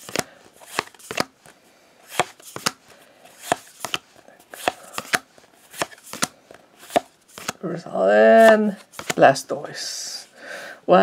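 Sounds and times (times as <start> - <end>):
trading cards snapping: 0.0 - 1.5, 2.1 - 7.6, 8.4 - 9.2.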